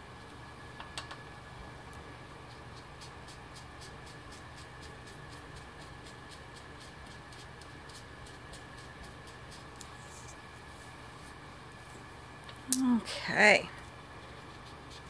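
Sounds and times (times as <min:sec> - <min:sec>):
blending tool scrubbing cardstock: 0:13.8 - 0:15.0.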